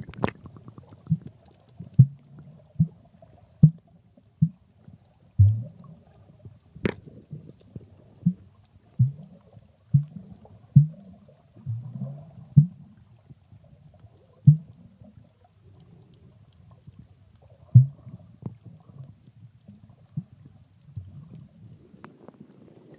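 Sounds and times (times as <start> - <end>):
underwater rumble of moving water: 0.0 - 22.9.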